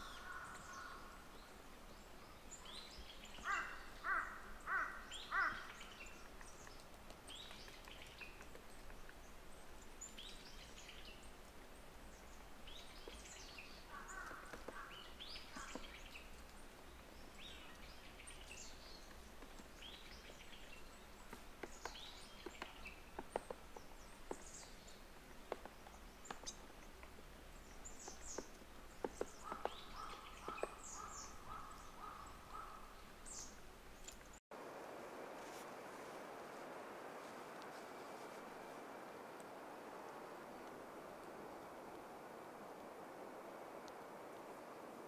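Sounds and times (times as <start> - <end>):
bill pecking at bark: 12.8 - 17.5, 19.0 - 32.8.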